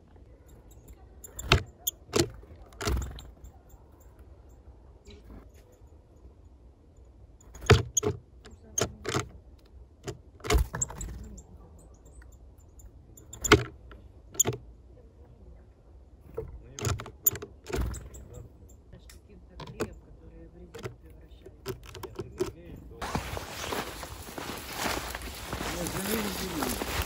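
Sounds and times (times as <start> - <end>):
bird pecking on wooden feeder: 13.2 - 14.6, 20.7 - 22.6.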